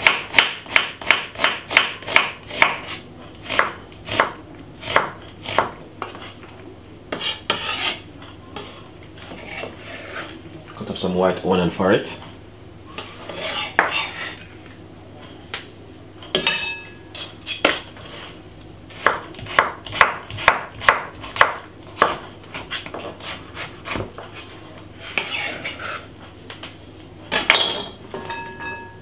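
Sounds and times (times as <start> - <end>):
knife chopping on wooden board: 0.0 - 6.2, 19.0 - 24.3
knife scraping board: 2.1 - 6.4, 7.1 - 8.0, 8.6 - 10.4, 13.0 - 14.5, 17.2 - 26.1.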